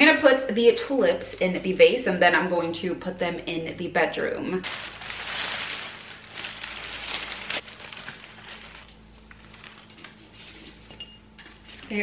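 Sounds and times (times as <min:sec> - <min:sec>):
wrapping paper rustling and crinkling: 0:04.6 - 0:10.8.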